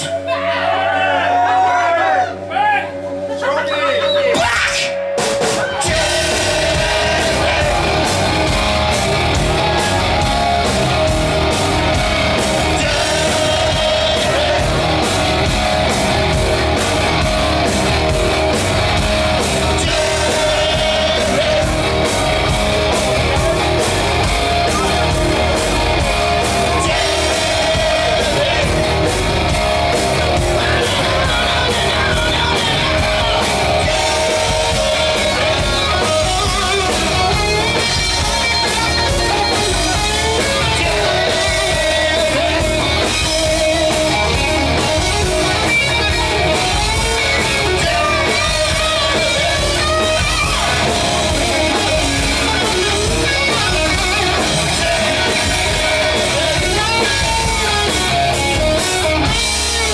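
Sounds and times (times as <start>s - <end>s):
bass: 0.0s - 59.9s
distorted electric guitars: 0.0s - 59.9s
drums: 0.0s - 59.9s
man singing and shouting: 3.6s - 10.5s, 12.4s - 16.4s, 19.4s - 59.9s.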